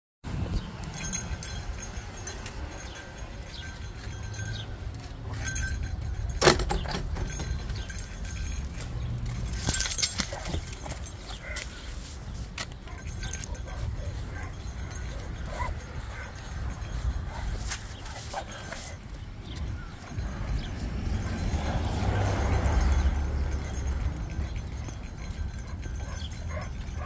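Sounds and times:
metal hardware jingling: 0:00.4 - 0:27.0
rubbing and handling noise: 0:09.4 - 0:19.2.

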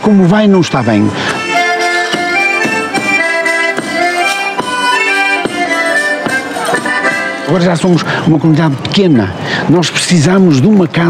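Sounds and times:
accordion folk dance music: 0:00.0 - 0:10.5
sharp percussive strikes: 0:01.4 - 0:07.5.

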